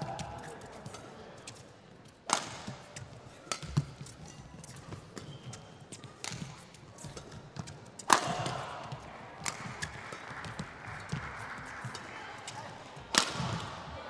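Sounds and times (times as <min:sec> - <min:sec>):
racket striking shuttlecock: 0:02.2 - 0:12.1, 0:13.0 - 0:13.8
shoe squeak: 0:04.2 - 0:05.8.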